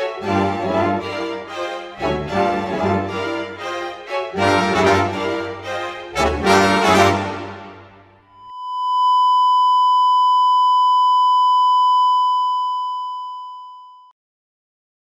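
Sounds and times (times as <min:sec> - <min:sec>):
long steady electronic beep: 0:08.3 - 0:14.1.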